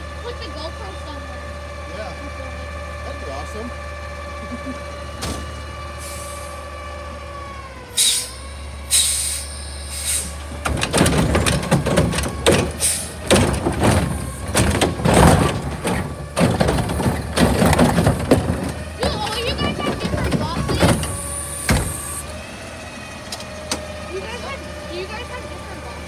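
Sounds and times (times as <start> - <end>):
garbage truck idling with whine: 0.0 - 26.0
short air hisses: 7.9 - 10.4, 12.8 - 13.2
loud rapid banging and clattering: 10.6 - 22.0.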